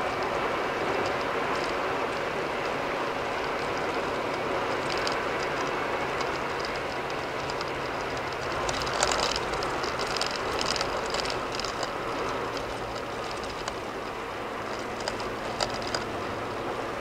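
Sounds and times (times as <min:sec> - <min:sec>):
tyre road roar: 0:00.0 - 0:17.0
sharp ticks: 0:03.4 - 0:16.1.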